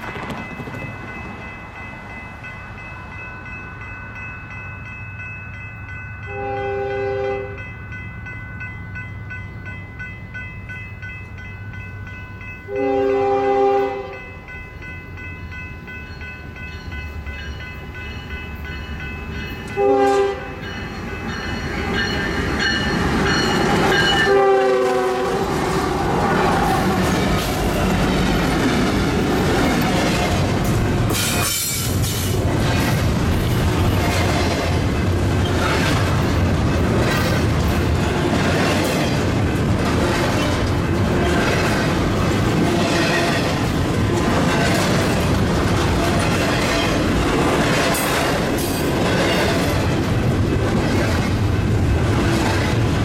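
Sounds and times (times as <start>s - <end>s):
train rumble: 0.0s - 53.0s
locomotive air horn blasts: 6.3s - 7.6s, 12.7s - 14.2s, 19.7s - 20.6s, 24.2s - 25.4s.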